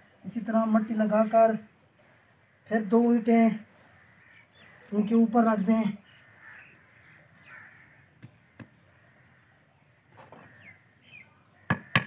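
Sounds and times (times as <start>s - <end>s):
faint crow caws: 1.6s - 5.4s, 6.0s - 12.0s
bricks knocking: 11.7s - 12.0s.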